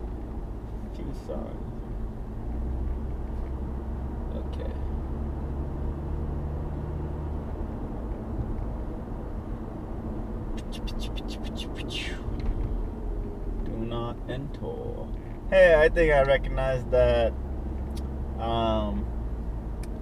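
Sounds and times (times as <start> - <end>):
car engine and road noise: 0.0 - 20.0.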